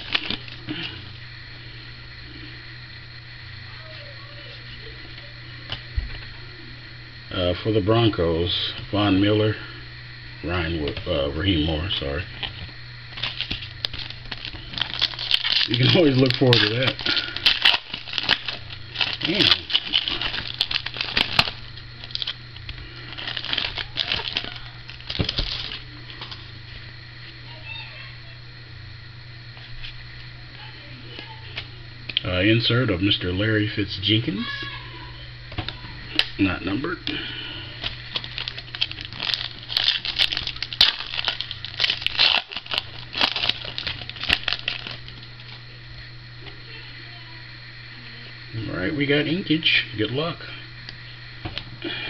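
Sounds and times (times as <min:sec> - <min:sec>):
foil wrapper crinkling: 0:00.0 - 0:01.0, 0:12.1 - 0:26.6, 0:35.7 - 0:45.7.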